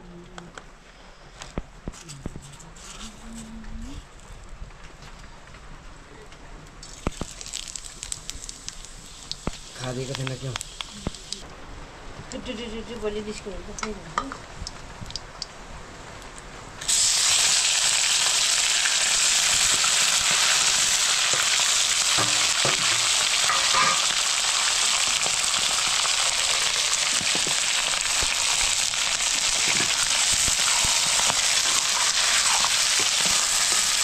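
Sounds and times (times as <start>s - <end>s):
food sizzling in hot oil: 6.8s - 11.4s, 16.8s - 34.0s.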